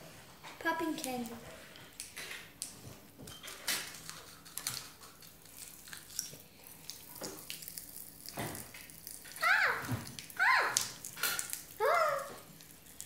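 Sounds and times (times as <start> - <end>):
popping candy crackling: 3.8 - 13.0.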